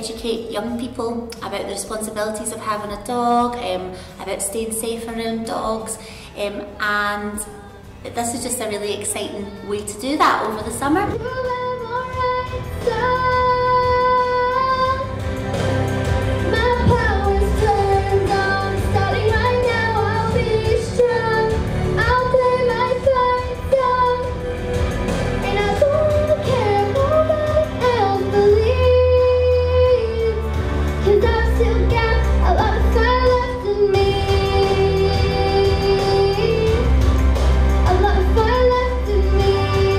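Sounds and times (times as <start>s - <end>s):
girl singing into a microphone: 0.0s - 15.1s, 16.4s - 24.4s, 25.4s - 36.9s, 37.8s - 39.9s
instrumental backing track: 0.0s - 39.9s.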